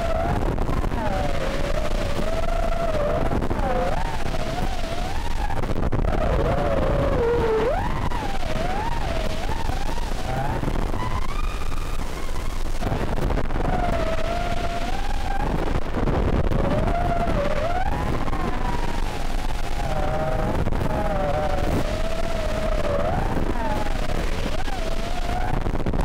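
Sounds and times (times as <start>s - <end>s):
quadcopter motors whining: 0.0s - 26.0s.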